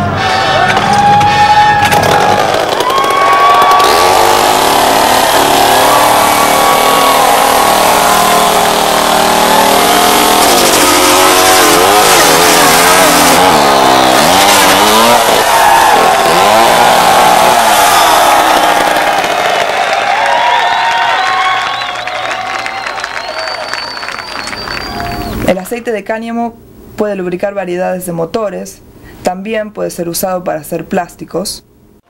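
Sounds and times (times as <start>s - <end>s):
chainsaw engine revving: 1.9s - 20.0s.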